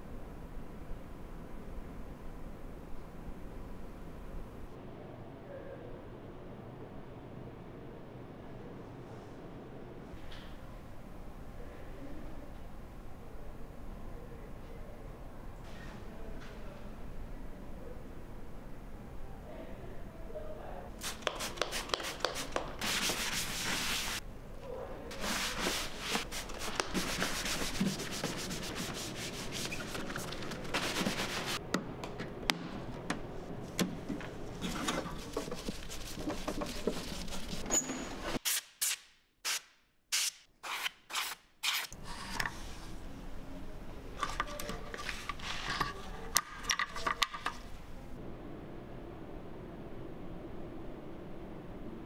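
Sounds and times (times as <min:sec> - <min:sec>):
scrubbing plastic case: 0:25.2 - 0:31.6, 0:34.6 - 0:37.6.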